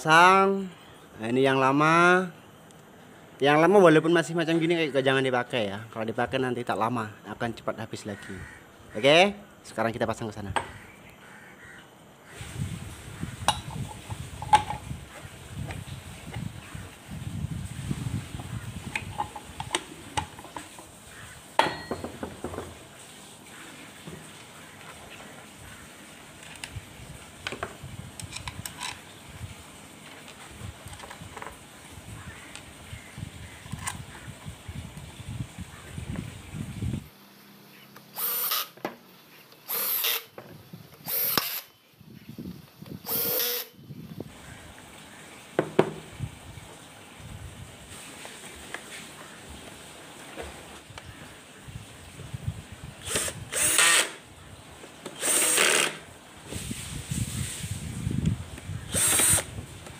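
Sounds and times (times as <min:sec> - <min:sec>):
sharp metallic clank: 0:21.6 - 0:22.1
metal clinking and knocking: 0:21.6 - 0:22.7
cordless drill running: 0:38.1 - 0:38.8, 0:39.7 - 0:40.3, 0:41.0 - 0:41.7, 0:43.0 - 0:43.8, 0:53.0 - 0:54.2, 0:55.2 - 0:56.0, 0:58.9 - 0:59.5.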